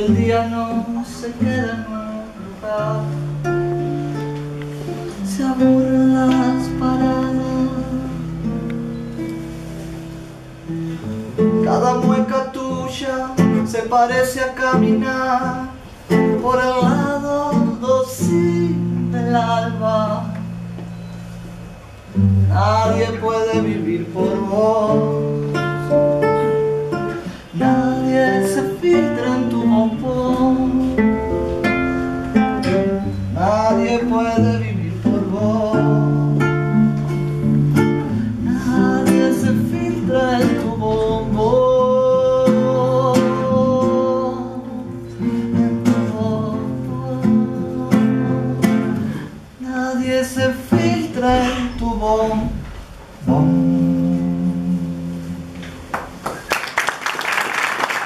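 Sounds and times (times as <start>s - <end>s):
acoustic guitar: 0.0s - 58.0s
person singing: 4.9s - 8.4s, 27.1s - 37.1s, 38.0s - 55.5s.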